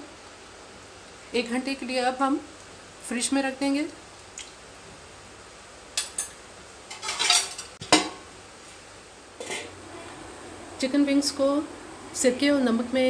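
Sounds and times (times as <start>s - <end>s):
steel kitchenware clinking: 6.0s - 8.2s
steel lid clanking on bowl: 9.4s - 9.7s.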